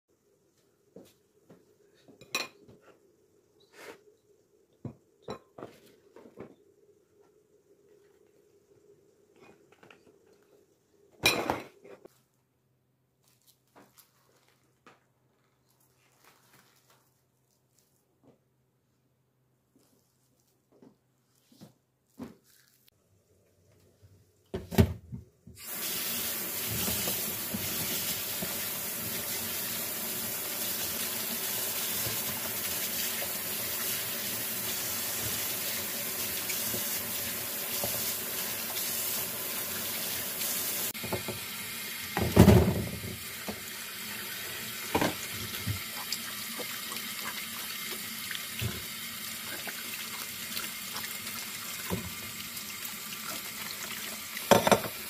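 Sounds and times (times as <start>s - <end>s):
kitchen tap water splashing: 25.6s - 55.0s.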